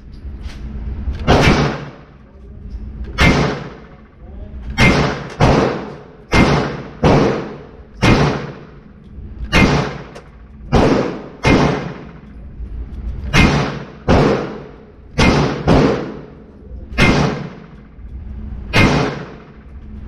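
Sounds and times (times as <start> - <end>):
gunshots echoing indoors: 1.2 - 2.2, 3.1 - 12.6, 13.2 - 19.9.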